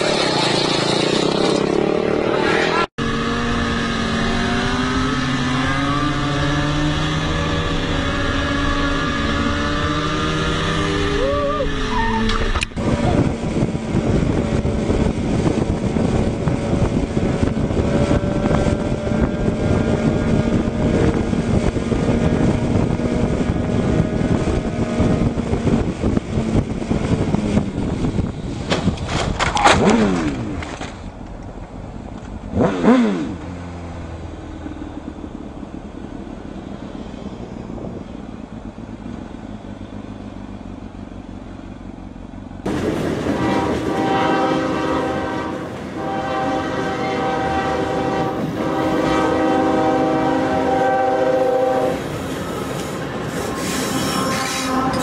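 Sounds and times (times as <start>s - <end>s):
vehicles passing with falling pitch: 0.0s - 55.0s
heavy wind noise: 2.9s - 32.4s, 35.0s - 39.0s, 42.6s - 55.0s
motorcycle engine running: 3.0s - 42.8s.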